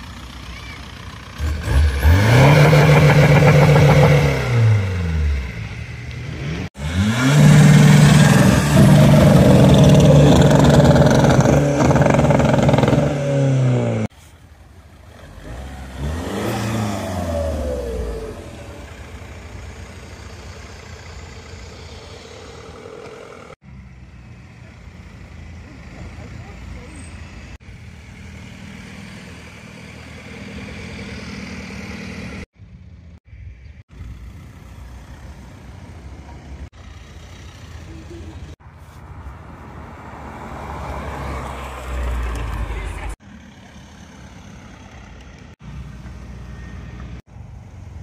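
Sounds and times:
diesel engine at high revs: 0.0s - 14.1s, 15.0s - 32.6s
car engine revving: 1.3s - 14.1s, 15.1s - 23.6s.

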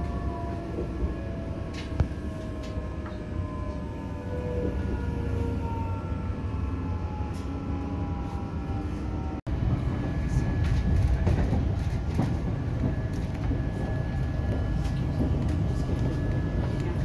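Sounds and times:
train wheels rumbling on rail: 0.0s - 6.2s, 7.0s - 17.0s.

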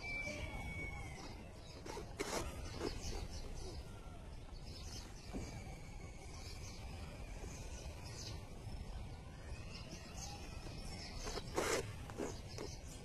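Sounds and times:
thread rasping through leather: 1.7s - 3.4s, 11.2s - 12.9s.

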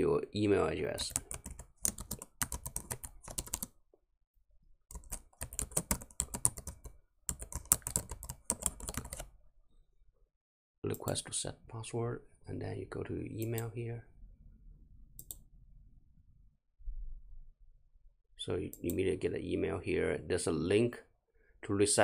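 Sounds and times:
typing on a computer keyboard: 1.0s - 3.8s, 4.9s - 9.3s.

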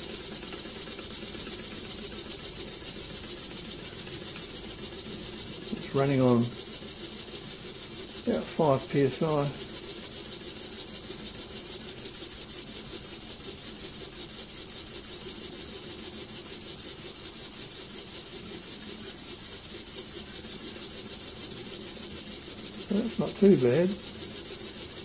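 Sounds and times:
air engine chuffing: 0.0s - 6.6s, 7.5s - 10.1s, 21.5s - 25.0s
constant air hiss: 0.0s - 25.0s.

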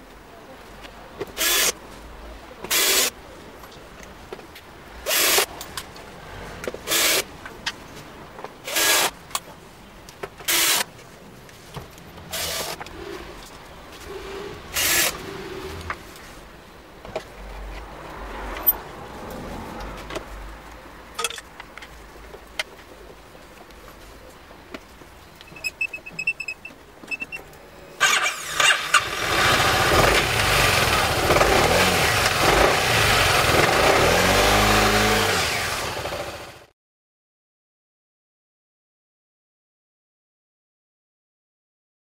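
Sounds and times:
parts being handled clicks: 21.2s - 22.8s
scooter engine running: 28.0s - 36.7s.

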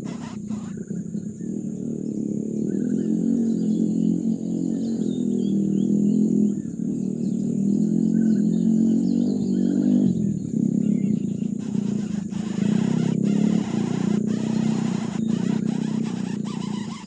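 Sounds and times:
low engine-like drone: 0.0s - 17.0s
small birds chirping: 0.0s - 17.0s.

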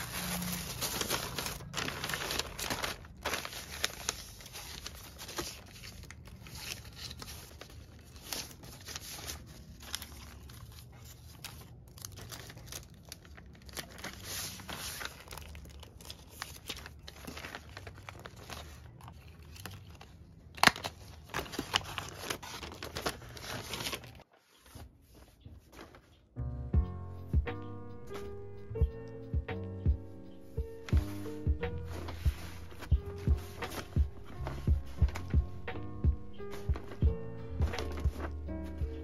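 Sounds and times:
paper bag crinkling: 0.0s - 26.2s, 36.4s - 38.5s.

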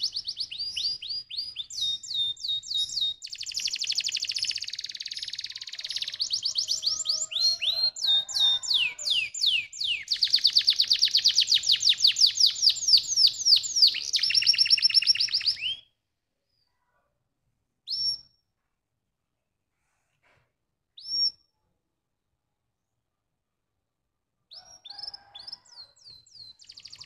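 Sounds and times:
canary singing trills: 0.0s - 15.9s, 24.5s - 27.0s
short bird chirp: 24.5s - 27.0s.

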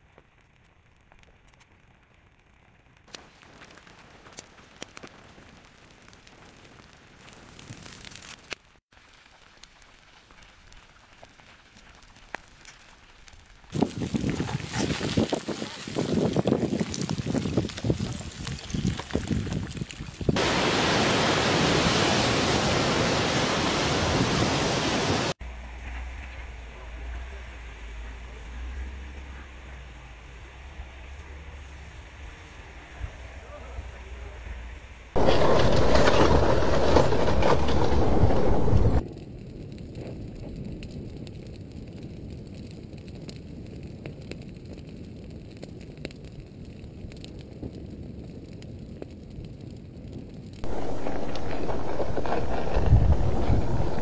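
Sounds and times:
brush burning and crackling: 0.0s - 54.0s
ocean surf rushing: 20.4s - 25.4s, 35.2s - 39.0s, 50.6s - 54.0s
low steady rush: 50.6s - 54.0s.

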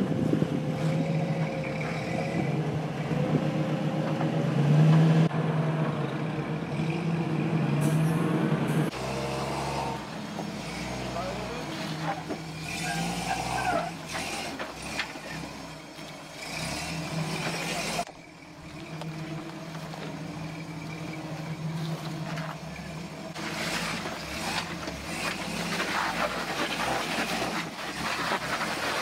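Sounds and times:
vehicle engine running at low speed: 14.0s - 29.0s.

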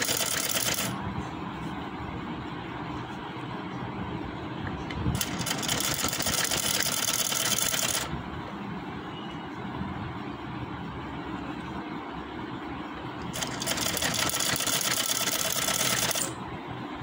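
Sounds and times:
sewing machine running: 0.0s - 1.0s, 5.2s - 8.1s, 13.3s - 16.4s.

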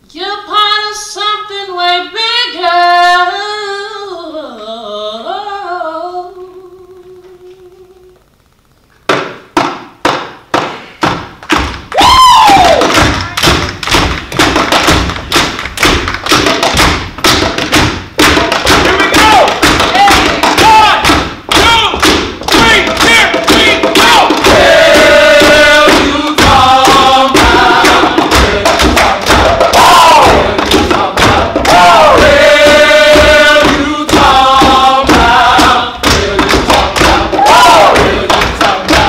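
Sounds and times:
rhythmic hand claps and thumps: 9.0s - 39.0s
whoo shout: 11.9s - 12.9s.

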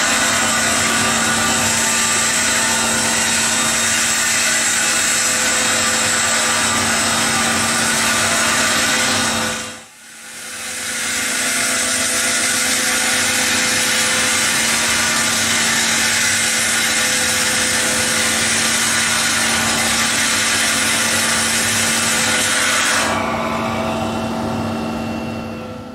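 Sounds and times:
concrete saw grinding hiss: 0.0s - 23.8s
constant machine hum: 0.0s - 25.9s.

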